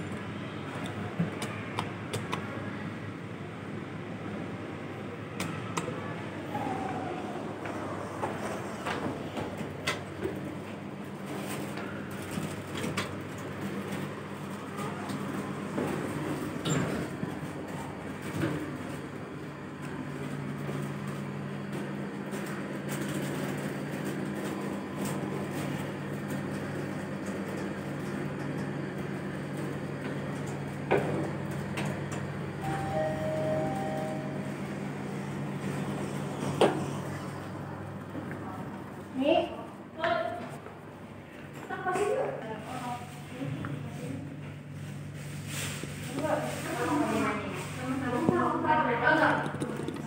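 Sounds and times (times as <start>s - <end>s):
lift travelling hum: 0.0s - 50.0s
two-note arrival chime: 32.6s - 34.5s.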